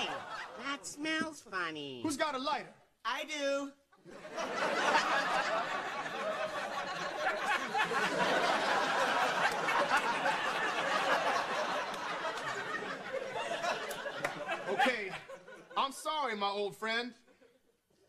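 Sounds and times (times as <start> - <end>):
audience laughing: 0.0 - 0.9, 4.0 - 15.8.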